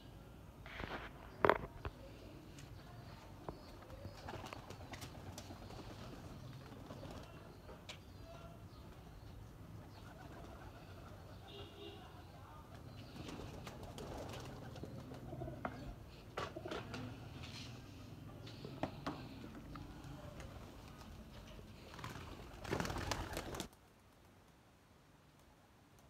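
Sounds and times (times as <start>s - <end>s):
pigeons cooing: 9.8s - 11.6s, 12.8s - 23.7s.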